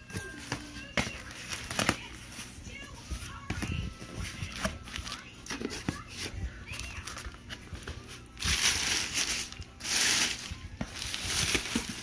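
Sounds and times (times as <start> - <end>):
plastic wrap crinkling: 6.6 - 12.0.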